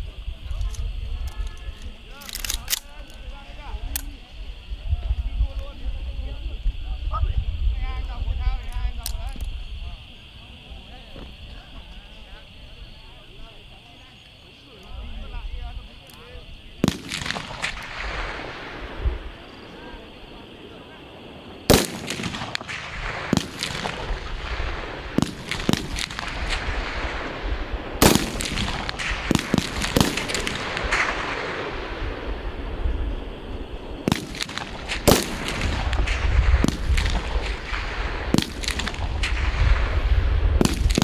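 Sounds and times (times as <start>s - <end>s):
rifle gunshots: 16.8s - 19.6s, 21.6s - 32.8s, 33.8s - 41.0s.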